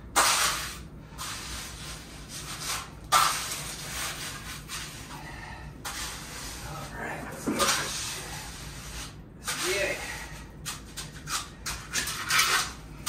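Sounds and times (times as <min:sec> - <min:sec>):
trowel scraping wet cement: 0:00.1 - 0:05.1, 0:10.7 - 0:12.8.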